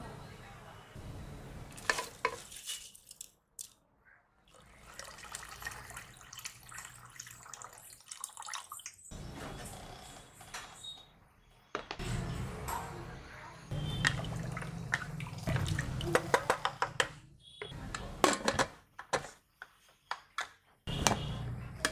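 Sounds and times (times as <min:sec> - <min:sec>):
water pouring into pot: 0:04.5 - 0:09.1.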